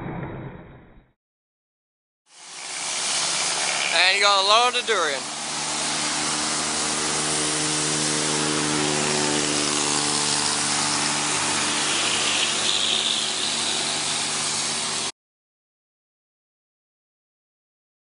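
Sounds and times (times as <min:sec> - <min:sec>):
motor humming: 0:02.3 - 0:15.1
loud rushing noise: 0:02.4 - 0:15.1.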